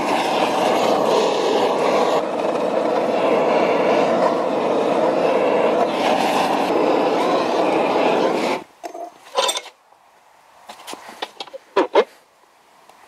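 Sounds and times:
gas torch flame rushing: 0.0 - 9.4.

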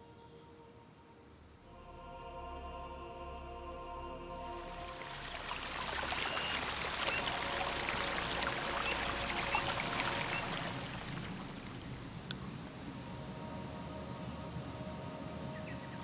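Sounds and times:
stream trickling and splashing: 4.4 - 16.0.

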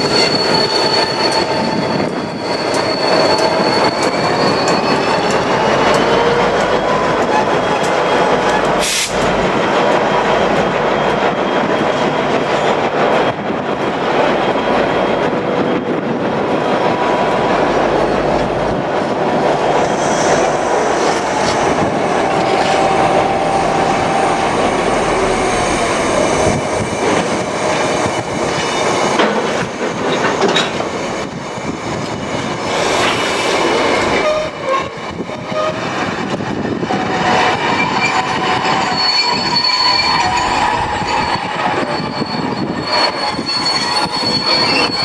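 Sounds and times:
wheels squealing: 0.0 - 8.8, 37.2 - 45.0
freight train wheels clattering: 0.0 - 45.0.

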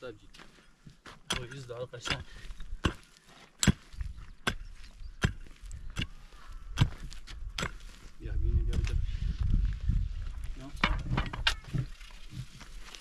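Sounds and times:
hand tool striking something hard: 1.3 - 3.0, 3.6 - 4.6.

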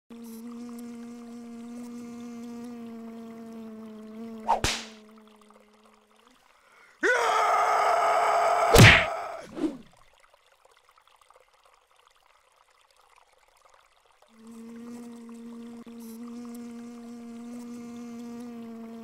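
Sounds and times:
punch impact: 4.5 - 5.0, 8.7 - 9.6
harsh vocal-like cry: 7.0 - 9.8
short whoosh: 8.8 - 9.8.

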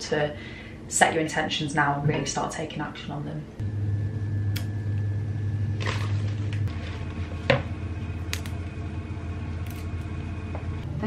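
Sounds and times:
kitchen appliance hum: 3.6 - 11.0
leaves tossed in plastic bowl: 5.8 - 7.4.

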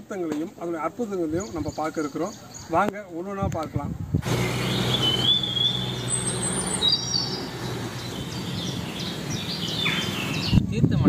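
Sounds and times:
birds chirping and whistling: 4.2 - 10.6.

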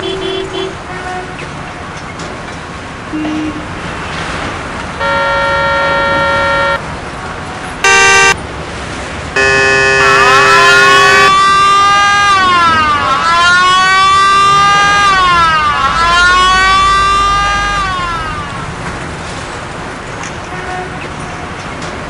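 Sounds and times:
car horn honking: 5.0 - 6.8, 7.8 - 8.4, 9.4 - 11.4
emergency siren wailing: 5.0 - 6.8, 7.8 - 8.4, 9.4 - 18.9.

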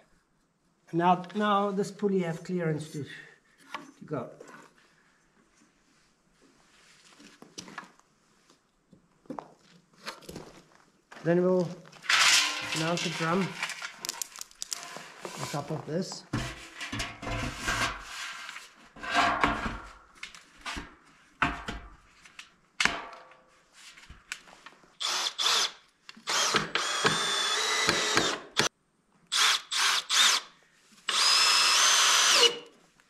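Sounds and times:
cordless drill whining: 25.0 - 28.7, 29.3 - 30.5, 31.1 - 32.7.

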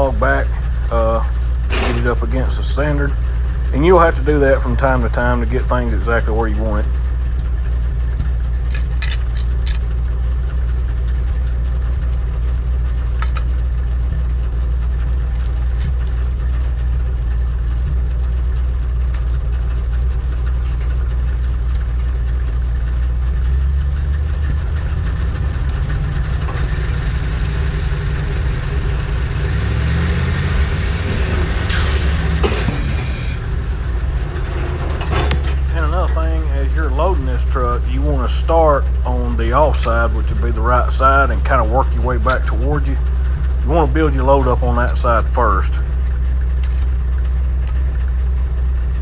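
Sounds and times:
truck engine idling: 0.0 - 49.0
loud noisy burst: 26.1 - 37.9.

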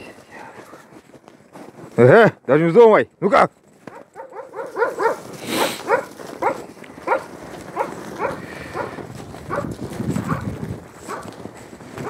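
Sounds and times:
footsteps shuffling in snow: 0.0 - 12.0
dog barking in high yaps: 3.9 - 8.9, 9.5 - 9.7.

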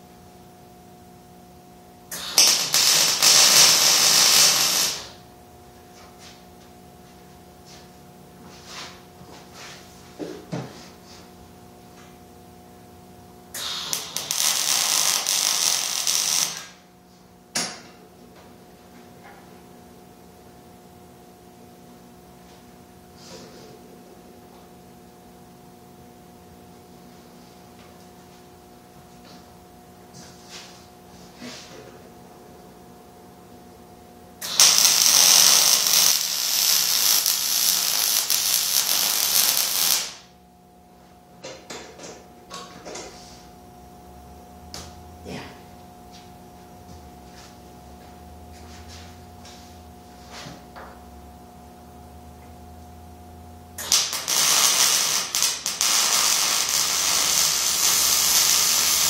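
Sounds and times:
steady hum: 0.0 - 59.0
arc welder crackling: 2.1 - 5.3, 13.5 - 16.9, 34.4 - 40.4, 53.8 - 59.0.

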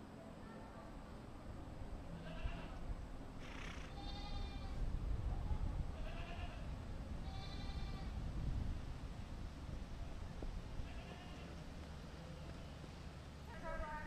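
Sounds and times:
sheep bleating: 2.2 - 2.8, 3.7 - 4.8, 10.9 - 11.5.

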